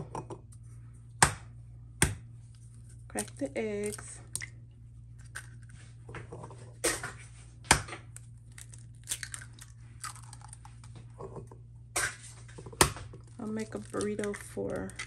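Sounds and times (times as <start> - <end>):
steady low hum: 0.0 - 15.0
eggshell crunching: 2.5 - 5.8, 7.6 - 15.0.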